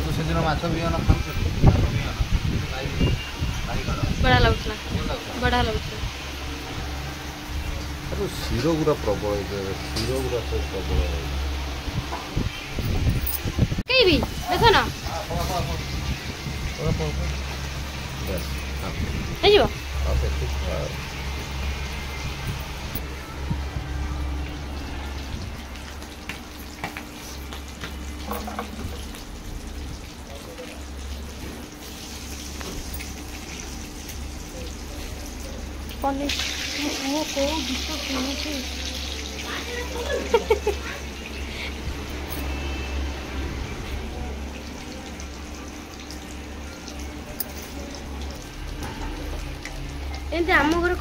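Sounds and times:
fan humming: 0.0s - 51.0s
fish sizzling in hot oil: 11.2s - 51.0s.

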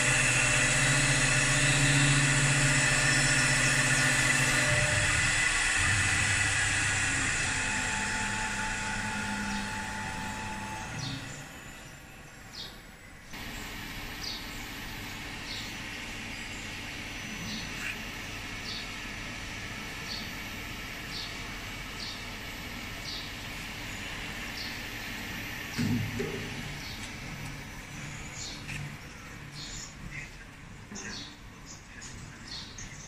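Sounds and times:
wood lathe spindle running: 0.0s - 12.2s.

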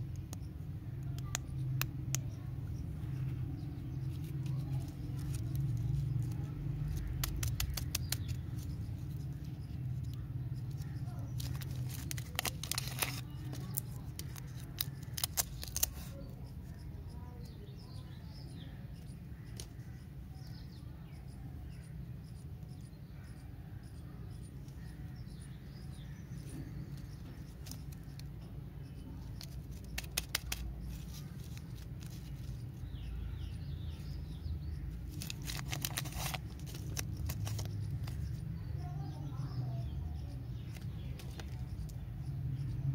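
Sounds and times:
wrappers crinkling and tearing: 11.4s - 16.1s, 35.1s - 37.7s.

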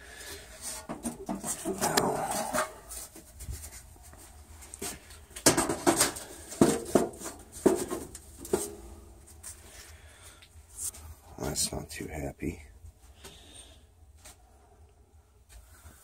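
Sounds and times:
metal pipe scraping and rubbing: 0.2s - 3.9s.

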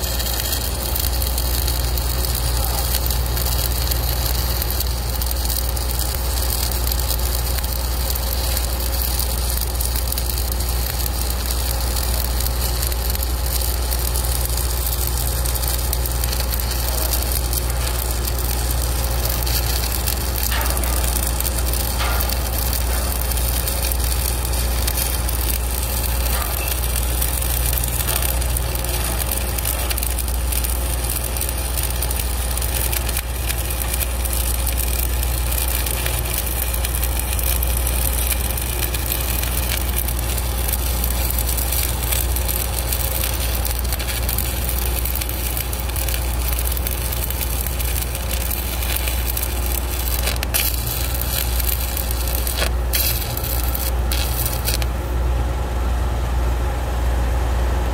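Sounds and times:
welding arc crackling: 0.0s - 55.2s
steady low hum: 0.0s - 57.9s.

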